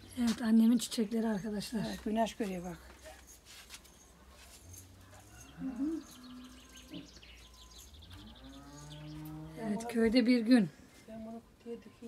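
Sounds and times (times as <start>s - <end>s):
small birds chirping: 3.8s - 10.4s
cow mooing: 8.1s - 9.8s.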